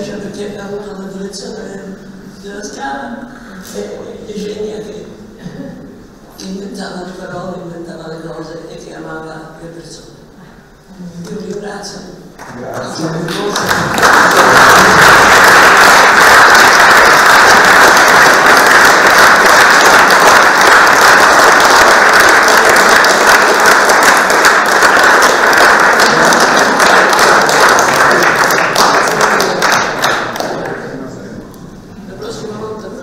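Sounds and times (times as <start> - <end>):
audience applauding: 12.4 - 31.0.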